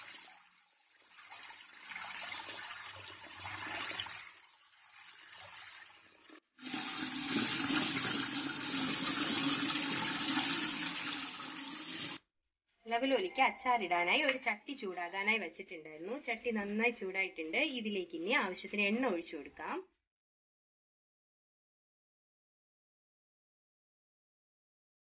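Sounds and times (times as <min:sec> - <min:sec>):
tap water running into colander: 0:00.0 - 0:12.2.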